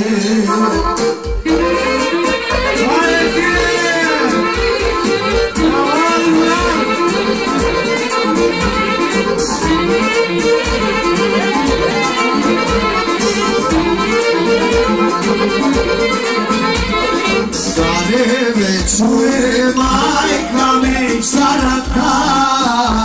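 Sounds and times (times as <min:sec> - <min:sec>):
folk violin music: 0:01.4 - 0:18.1.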